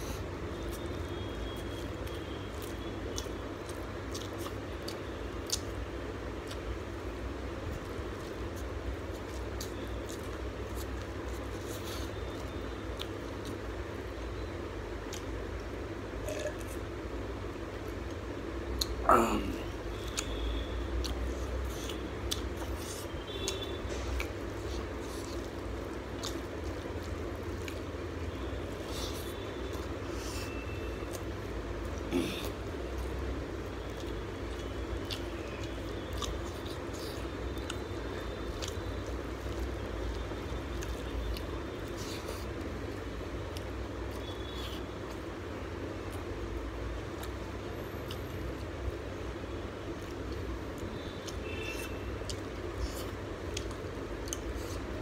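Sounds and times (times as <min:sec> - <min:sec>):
chewing: 0:00.0 - 0:05.8, 0:06.4 - 0:06.9, 0:07.7 - 0:13.7, 0:15.1 - 0:16.8, 0:18.8 - 0:45.3, 0:49.8 - 0:55.0
wet squishing of food by hand: 0:00.0 - 0:16.8, 0:19.6 - 0:55.0.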